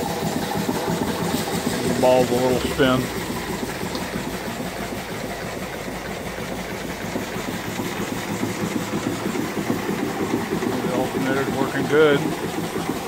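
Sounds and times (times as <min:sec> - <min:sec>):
steam engine exhaust chuffing: 0:00.0 - 0:13.0.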